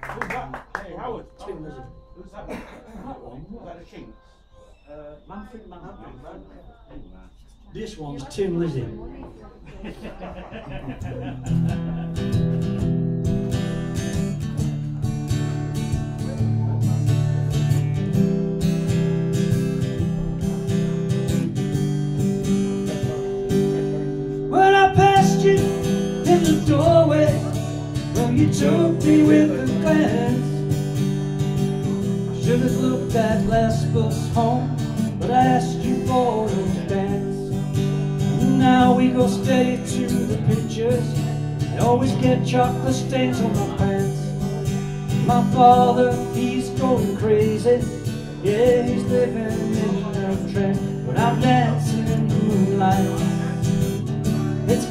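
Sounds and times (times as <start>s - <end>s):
acoustic guitar strumming: 11.0s - 54.9s
man singing: 22.9s - 30.8s, 31.7s - 54.9s.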